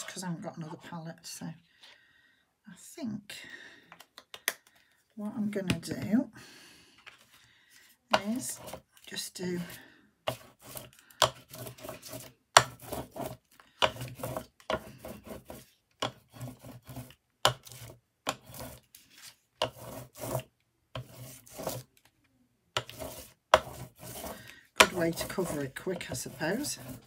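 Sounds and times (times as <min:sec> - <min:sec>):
brayer rasping through wet paint: 0:10.3 - 0:21.9, 0:22.8 - 0:27.0.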